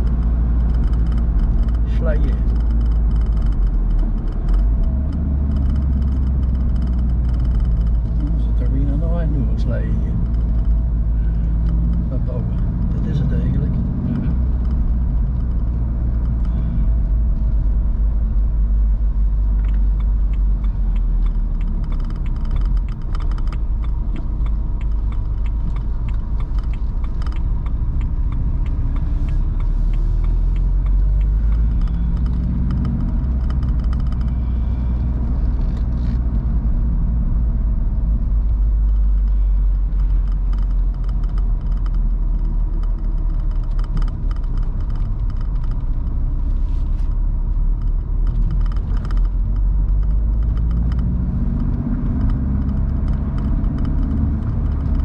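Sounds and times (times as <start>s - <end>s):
car engine rumble: 0.0s - 55.0s
tyre and wind noise: 13.8s - 55.0s.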